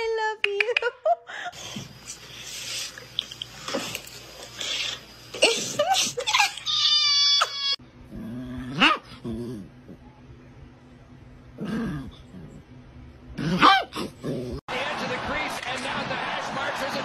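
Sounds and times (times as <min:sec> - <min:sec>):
dog growling and whining: 0:05.4 - 0:10.1, 0:11.6 - 0:12.6, 0:13.4 - 0:14.6
kitten screaming shrilly: 0:06.3 - 0:07.8.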